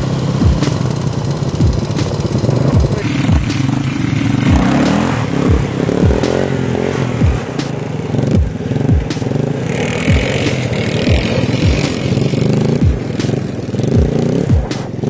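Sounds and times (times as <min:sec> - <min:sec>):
atv engines revving: 0:00.0 - 0:15.0
deep thumps dropping in pitch: 0:04.5 - 0:04.8, 0:07.2 - 0:07.7, 0:12.7 - 0:13.2, 0:13.9 - 0:15.0.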